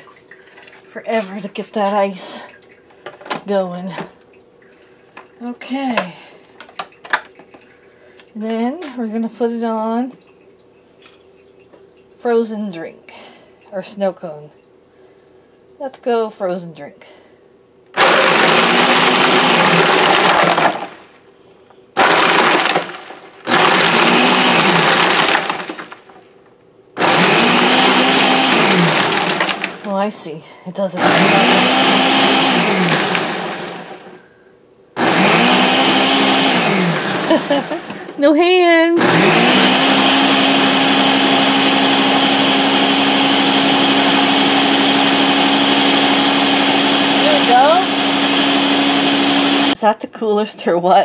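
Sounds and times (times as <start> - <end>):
blender crushing ice: 17.9 - 21.2, 22.0 - 26.2, 27.0 - 30.0, 31.0 - 34.2, 35.0 - 38.2, 39.0 - 49.8.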